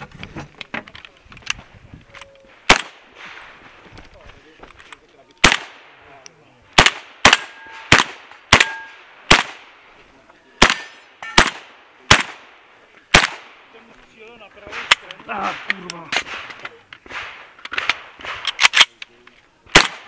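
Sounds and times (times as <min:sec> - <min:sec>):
shotgun shots with short echo: 0:02.6 - 0:03.6, 0:05.4 - 0:06.0, 0:06.8 - 0:09.8, 0:10.6 - 0:12.5, 0:13.1 - 0:13.6, 0:14.7 - 0:18.7, 0:19.7 - 0:20.0.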